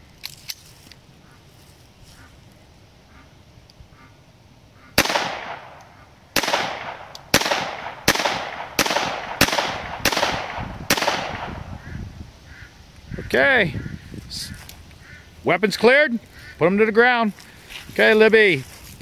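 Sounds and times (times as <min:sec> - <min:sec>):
handgun shots echoing: 0:05.0 - 0:11.7.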